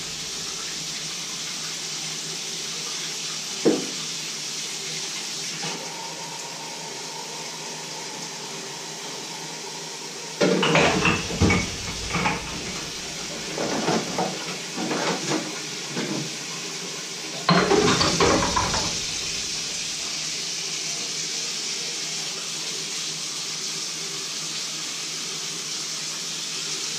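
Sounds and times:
dishes clattering in sink: 3.6 - 4.0, 10.4 - 16.4, 17.4 - 19.8
tap running into metal sink: 3.6 - 4.0, 10.4 - 16.3, 17.5 - 20.1.

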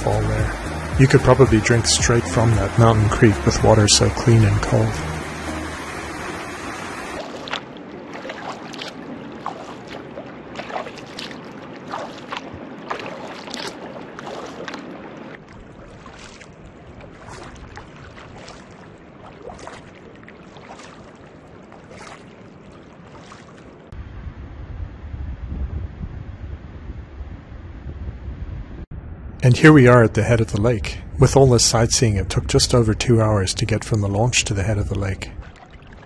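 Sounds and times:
paddle splashing water: 0.0 - 24.0, 34.9 - 36.0.

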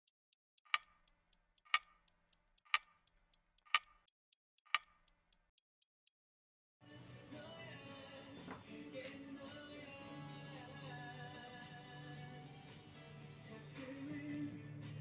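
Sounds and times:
lower clock tock: 0.0 - 1.9, 2.6 - 3.0, 3.6 - 5.9
clock ticking: 0.0 - 6.1.

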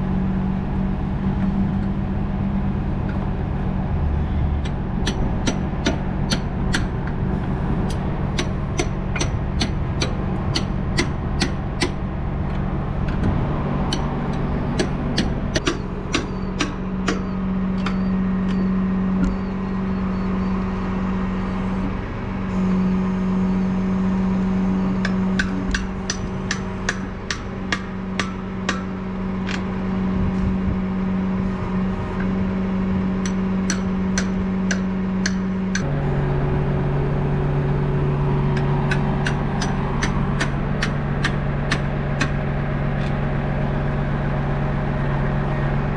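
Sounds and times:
diesel engine running: 0.0 - 45.9
sharp regular clicks: 4.6 - 7.2, 7.9 - 18.6, 38.5 - 42.4.

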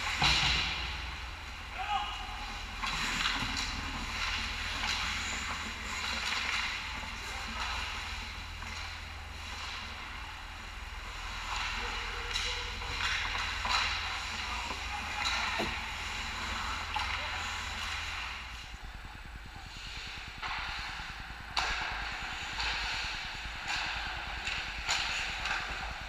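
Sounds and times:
steady low hum: 0.0 - 26.0
skate blades scraping ice: 2.4 - 18.4
hockey sticks clacking: 2.5 - 18.4, 19.8 - 26.0.

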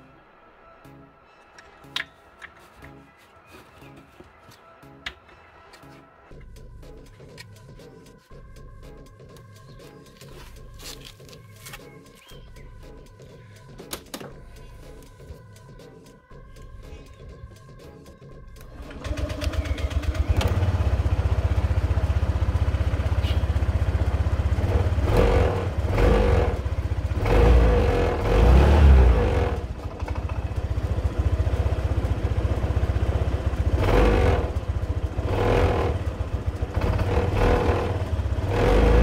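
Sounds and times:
scooter engine idling and revving: 18.3 - 39.0.

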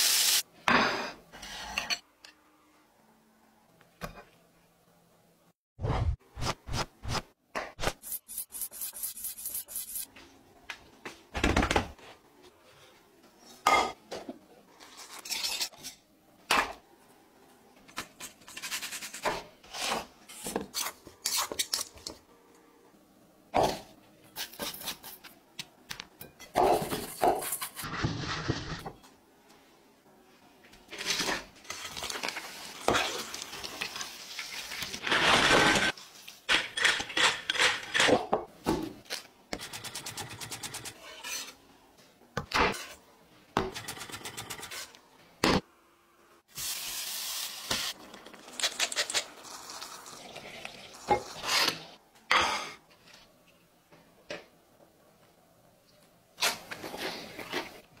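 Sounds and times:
food sizzling: 0.0 - 0.4, 31.8 - 36.4, 46.5 - 51.8.

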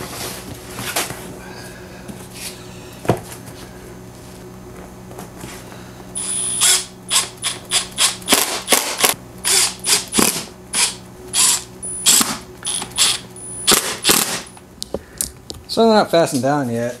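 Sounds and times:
cordless drill whining bursts: 6.2 - 8.4, 9.4 - 14.2.

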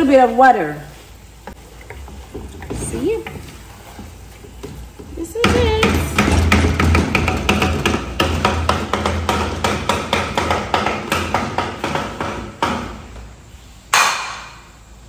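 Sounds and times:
rapid knocks: 1.5 - 13.2.

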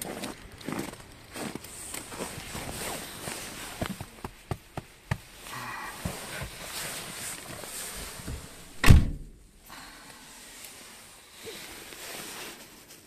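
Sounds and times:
car door shutting: 8.2 - 9.3.

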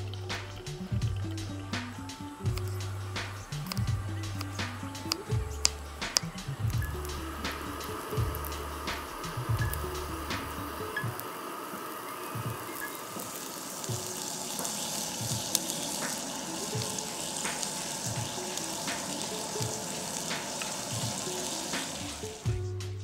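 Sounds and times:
vegetables sizzling in hot oil: 0.0 - 22.6
sharp oil pops: 1.8 - 6.8.

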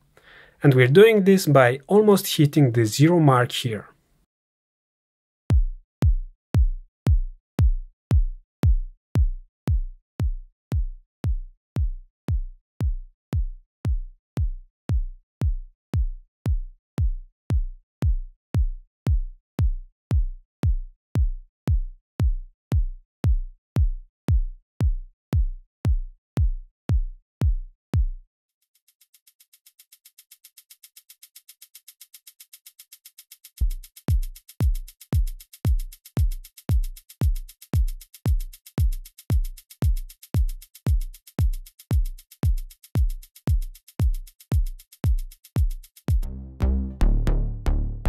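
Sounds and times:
kick drum beat: 5.5 - 28.2, 33.6 - 48.0.

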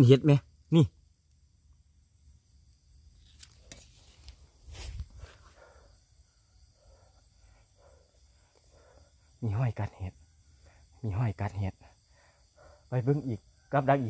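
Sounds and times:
night insects drone: 0.0 - 14.0
rustling and handling noise: 3.2 - 5.5.

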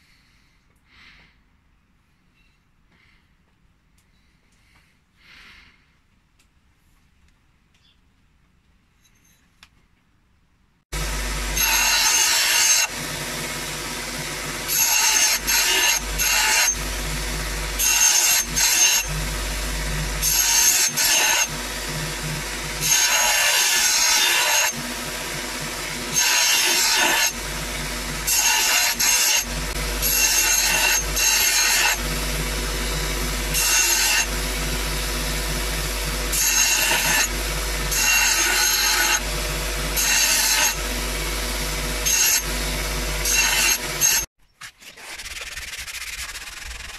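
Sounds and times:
belt sander motor hum: 11.0 - 44.2
harsh grinding of metal: 11.0 - 44.3.

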